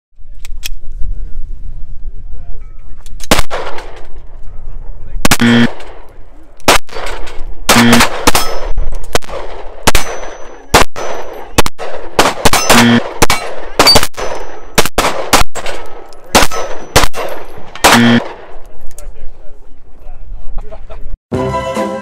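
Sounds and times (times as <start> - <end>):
pistol shots: 3.2 - 4.2, 5.2 - 18.6.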